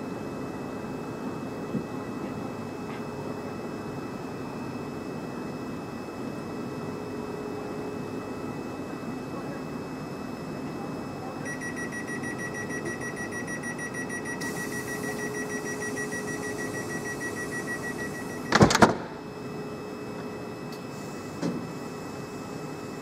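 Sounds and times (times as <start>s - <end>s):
door warning beeping: 11.4s - 18.8s
train doors slamming shut: 18.5s - 19.2s, 21.4s - 21.7s.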